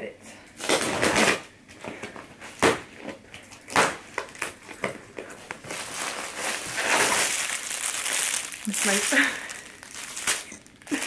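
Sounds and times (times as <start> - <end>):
plastic bag crinkling: 3.2 - 11.0.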